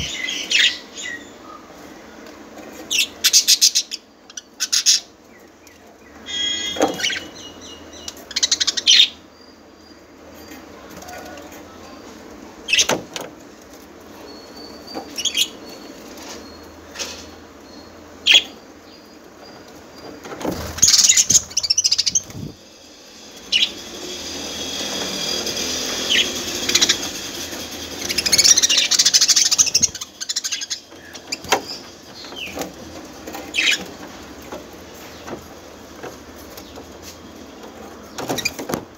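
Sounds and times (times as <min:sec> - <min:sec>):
budgerigars chirping and chattering: 0:00.0 - 0:01.4, 0:02.9 - 0:05.1, 0:06.1 - 0:09.2, 0:14.6 - 0:16.4, 0:17.0 - 0:19.0, 0:20.6 - 0:22.6, 0:23.3 - 0:34.2.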